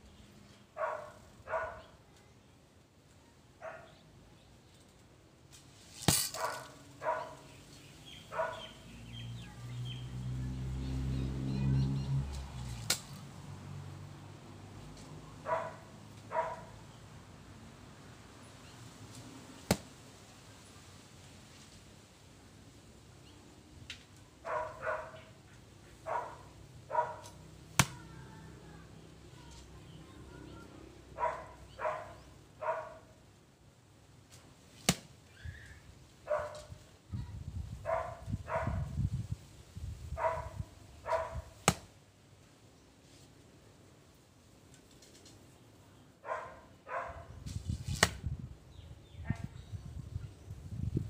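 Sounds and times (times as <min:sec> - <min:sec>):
dog barking: 0:00.8 - 0:02.0, 0:03.6 - 0:04.0, 0:06.4 - 0:07.5, 0:08.3 - 0:08.8, 0:15.4 - 0:16.8, 0:24.4 - 0:25.3, 0:26.0 - 0:27.4, 0:31.2 - 0:33.1, 0:36.3 - 0:36.7, 0:37.8 - 0:38.9, 0:40.2 - 0:41.6, 0:46.2 - 0:47.3
arrow striking foam target: 0:06.0 - 0:06.7, 0:19.6 - 0:19.9, 0:27.8 - 0:28.0, 0:34.8 - 0:35.1, 0:41.6 - 0:41.9, 0:47.8 - 0:48.3
arrow hitting beside target: 0:06.0 - 0:06.8, 0:12.7 - 0:13.2, 0:47.5 - 0:48.3.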